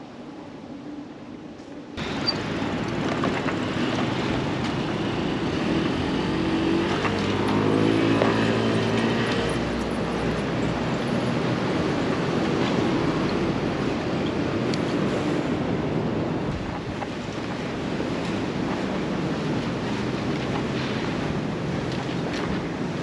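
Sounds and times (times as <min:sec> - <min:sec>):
street traffic noise: 0:00.0 - 0:23.0
vehicle engine passing: 0:04.9 - 0:09.8.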